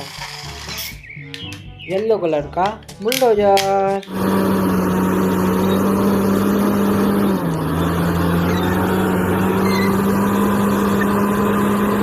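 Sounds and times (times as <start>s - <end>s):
bulldozer diesel engine droning: 4.0s - 12.0s.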